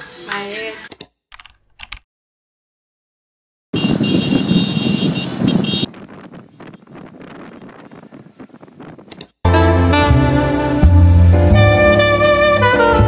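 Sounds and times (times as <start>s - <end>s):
motorcycles passing: 3.8s - 8.0s
road traffic: 3.8s - 8.2s, 9.1s - 13.0s.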